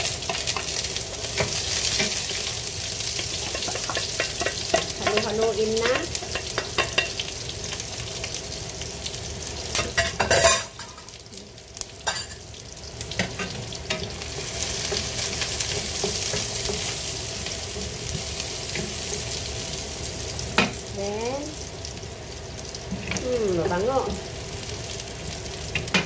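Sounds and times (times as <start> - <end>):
noodles sizzling in a pan: 0.0 - 26.0
spatula scraping and knocking pan: 3.1 - 7.3, 13.1 - 17.1.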